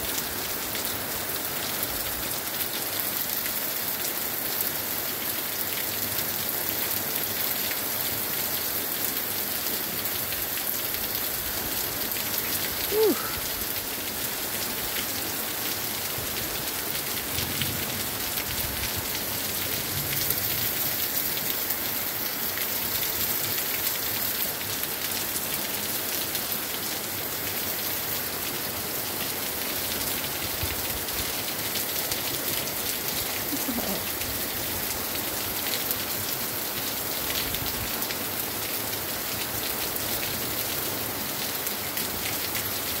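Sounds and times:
rain on grass and water: 0.0s - 43.0s
raindrops landing close by: 31.0s - 34.8s.

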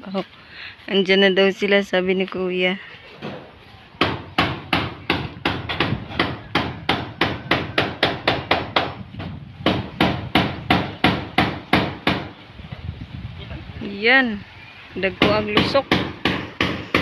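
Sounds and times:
hammer nailing metal roofing: 4.0s - 12.4s, 15.1s - 17.0s.

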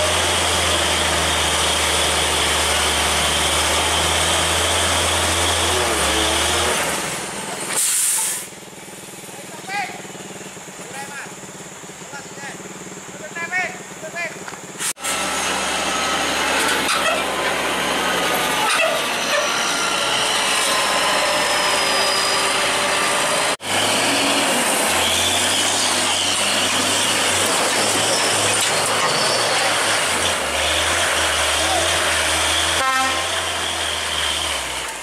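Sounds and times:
diesel truck engine humming: 0.0s - 7.7s, 8.5s - 35.0s
truck rolling over rough dirt road: 13.8s - 35.0s.

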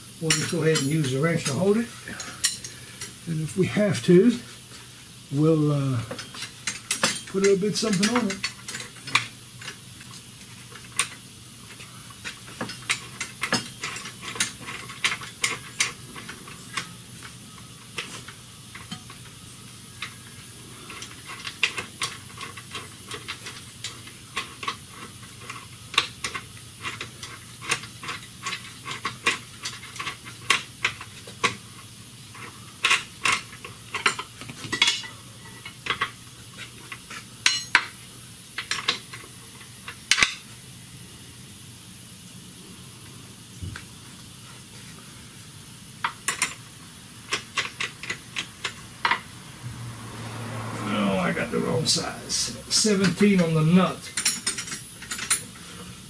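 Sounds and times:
wrench clinking on metal: 0.3s - 1.6s, 6.1s - 9.8s, 37.4s - 37.9s, 54.1s - 55.5s.

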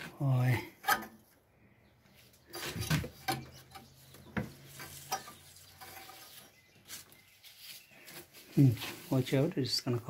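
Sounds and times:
dry grass rustling and scratching: 3.9s - 10.0s.

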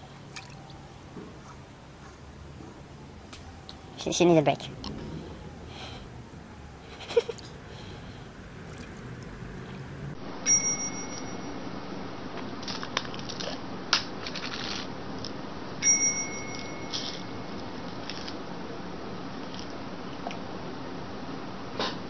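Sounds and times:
small bell-like ding: 10.4s - 11.6s, 15.8s - 17.4s.

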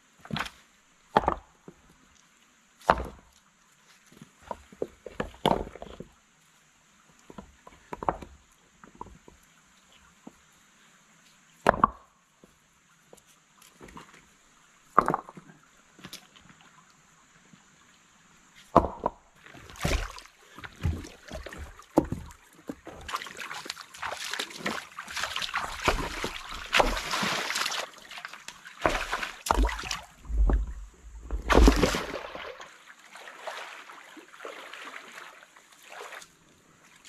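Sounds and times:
stones plunking into water: 2.9s - 3.3s, 11.6s - 12.1s, 14.9s - 15.5s, 18.7s - 32.7s
water splashing in stream: 18.7s - 37.0s
wading through water: 19.4s - 37.0s.

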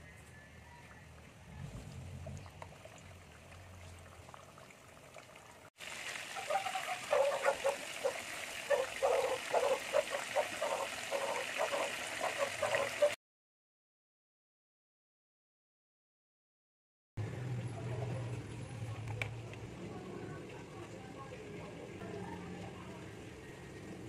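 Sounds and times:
food deep-frying in oil: 2.3s - 13.2s.

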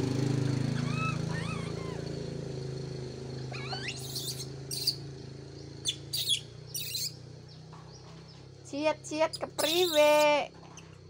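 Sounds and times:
low motor hum: 0.0s - 11.0s
high chirps and squeaks: 0.8s - 2.1s, 3.4s - 5.0s, 5.8s - 7.2s, 9.1s - 11.0s.

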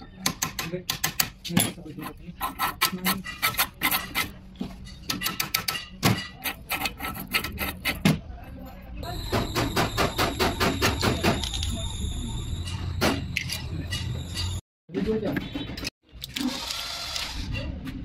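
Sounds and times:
steel pick scraping metal: 1.9s - 4.3s, 4.9s - 8.0s.

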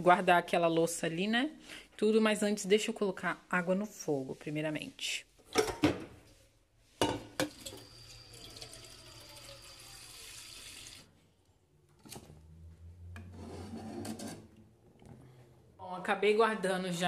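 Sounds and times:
tap water running into pot: 7.4s - 11.1s.

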